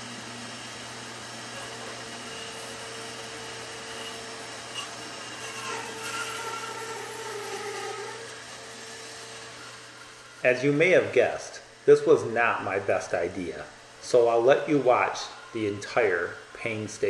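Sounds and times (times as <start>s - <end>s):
bandsaw motor hum: 0.0s - 17.0s
bandsaw blade cutting wood: 0.8s - 13.3s.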